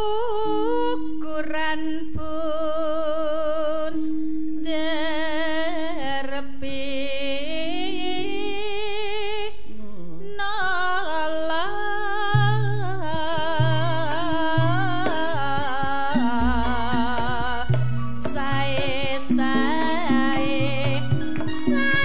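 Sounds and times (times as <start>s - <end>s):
woman singing with vibrato: 0.0s - 22.0s
gamelan metallic strokes: 13.1s - 22.0s.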